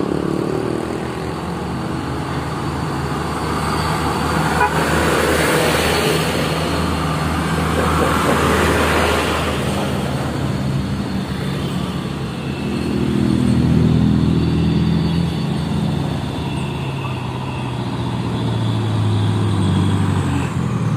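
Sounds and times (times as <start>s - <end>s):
truck engine: 0.0s - 20.9s
trucks passing on a road: 0.0s - 20.9s.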